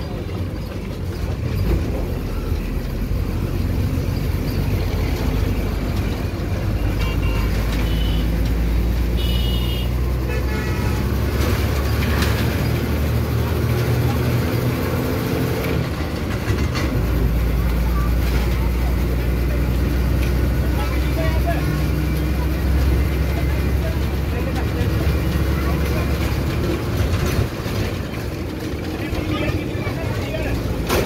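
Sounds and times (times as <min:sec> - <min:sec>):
traffic engine and road rumble: 0:00.0 - 0:31.0
car horn honks: 0:07.0 - 0:08.4, 0:09.1 - 0:11.2.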